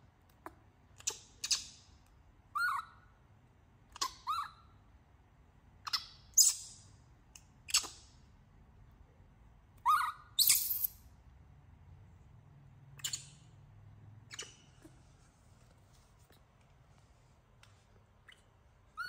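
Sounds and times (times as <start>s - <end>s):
baby monkey squeaks: 1.0s - 3.2s, 3.9s - 4.8s, 5.8s - 6.9s, 7.6s - 8.2s, 9.8s - 11.1s, 13.0s - 13.6s, 14.2s - 15.0s, 18.2s - 19.0s.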